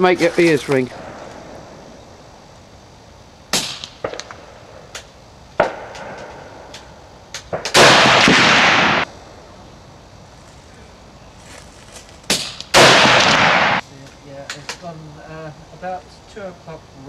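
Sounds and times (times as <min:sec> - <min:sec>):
rifle shot: 0:03.5 - 0:05.0, 0:05.6 - 0:06.4, 0:07.4 - 0:09.1, 0:12.3 - 0:13.8.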